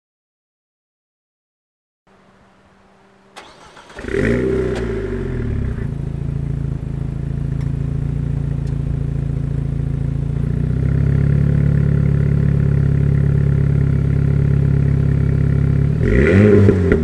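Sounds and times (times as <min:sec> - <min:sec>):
car engine starting and idling: 0:02.1 - 0:17.0
ignition click: 0:03.4 - 0:05.1, 0:08.5 - 0:09.0.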